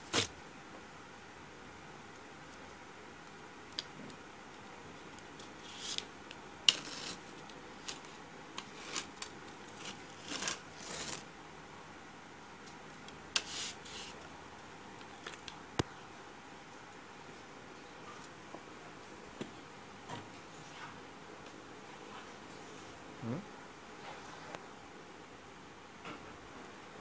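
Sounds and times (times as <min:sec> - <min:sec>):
paper rustling and scraping: 0:00.0 - 0:00.3, 0:06.7 - 0:11.3.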